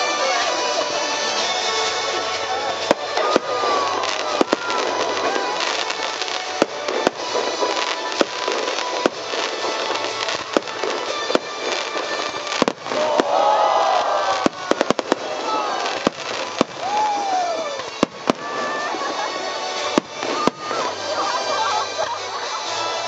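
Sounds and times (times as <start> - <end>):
firework shells bursting: 2.9 - 20.9.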